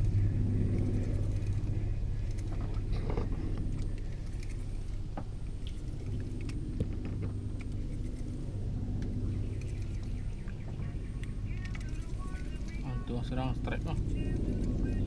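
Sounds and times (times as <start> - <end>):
boat engine droning: 0.0 - 15.0.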